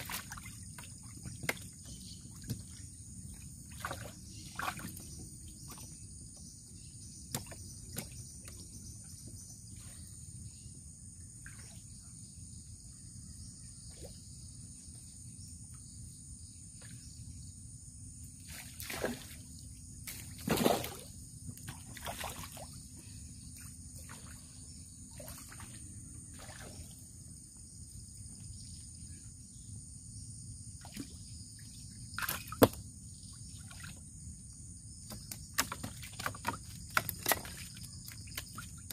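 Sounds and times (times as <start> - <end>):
water splashes: 0.0 - 5.9, 18.5 - 19.5, 20.1 - 21.1, 21.7 - 22.8, 25.1 - 27.0, 32.1 - 32.8, 35.1 - 38.9.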